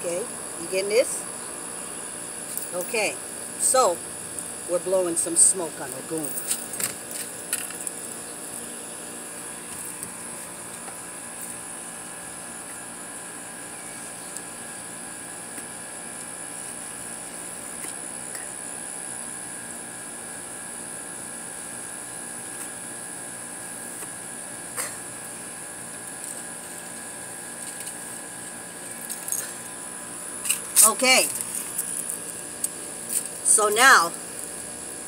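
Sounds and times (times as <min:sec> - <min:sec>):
high steady whine: 0:24.8 - 0:35.0.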